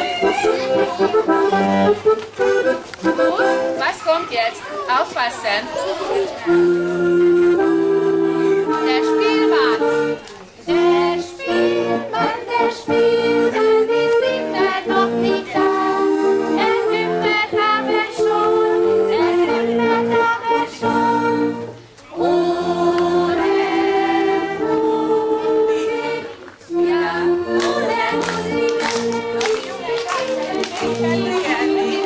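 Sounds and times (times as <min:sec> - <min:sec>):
group of voices singing: 0:09.8 - 0:32.0.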